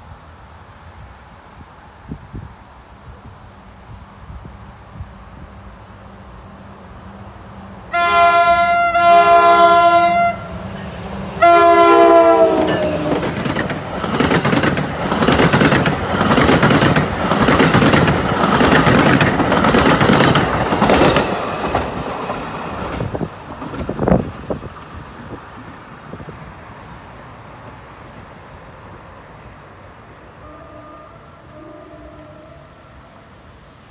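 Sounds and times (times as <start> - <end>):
train air horn blasting: 7.9 - 13.3, 30.4 - 33.3
train wheels clacking on rails: 12.4 - 25.9.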